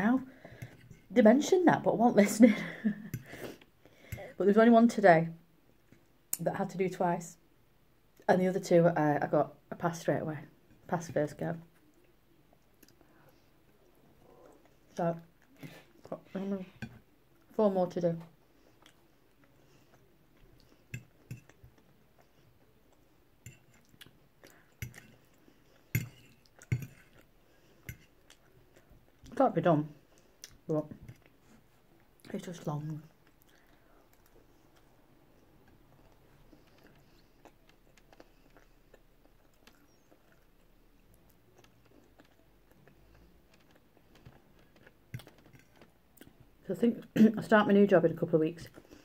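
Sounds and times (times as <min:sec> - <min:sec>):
quiet chewing: 0:11.7 - 0:17.5, 0:18.3 - 0:47.1, 0:48.6 - 0:49.0.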